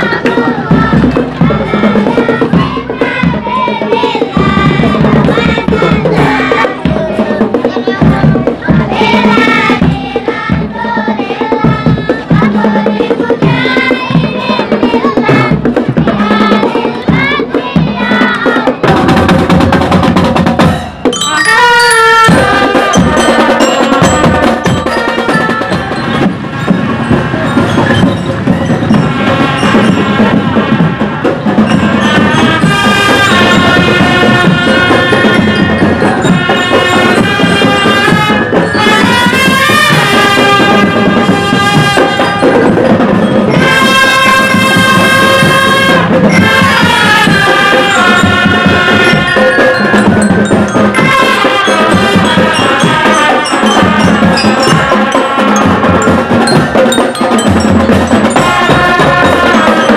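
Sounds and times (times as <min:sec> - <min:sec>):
drums keeping march beat: 0:00.0 - 0:59.9
marching band playing: 0:00.0 - 0:59.9
trumpet melody: 0:18.8 - 0:59.9.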